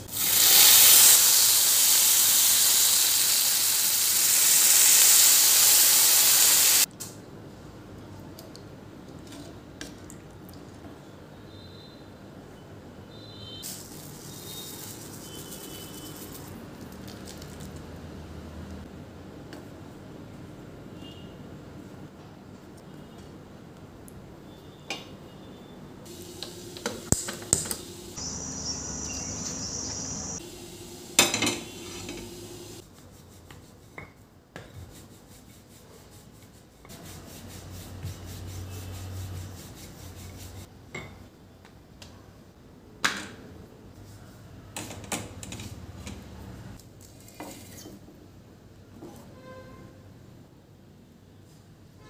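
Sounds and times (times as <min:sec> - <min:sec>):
utensils clanking on steel pans: 0:31.1 - 0:32.5.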